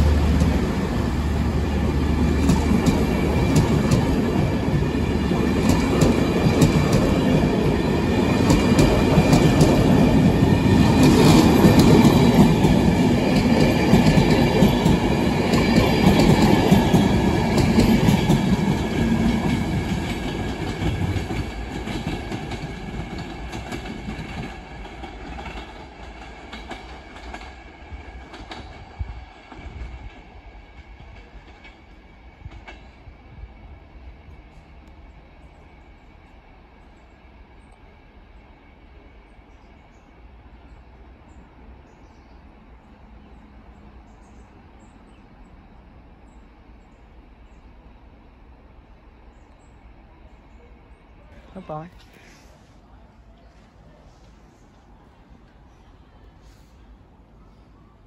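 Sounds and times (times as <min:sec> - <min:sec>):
train wheels clickety-clack: 0:00.0 - 0:33.4.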